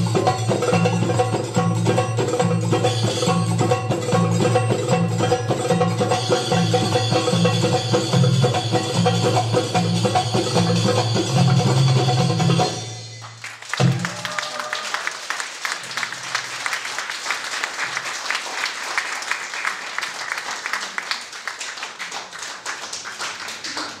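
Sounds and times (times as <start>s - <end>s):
audience applauding: 13.2s - 24.0s.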